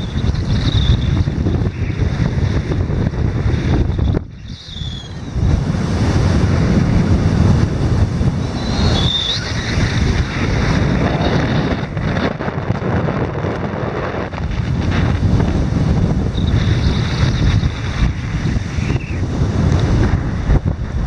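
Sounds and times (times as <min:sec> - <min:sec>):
wind buffeting microphone: 0:00.0 - 0:21.0
high chirp: 0:04.0 - 0:05.4.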